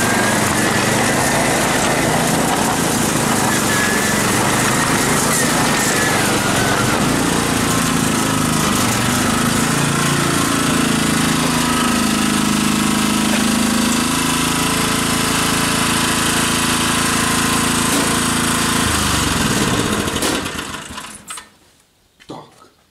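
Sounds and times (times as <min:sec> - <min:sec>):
miniature train mechanical drone: 0:00.0 - 0:14.9.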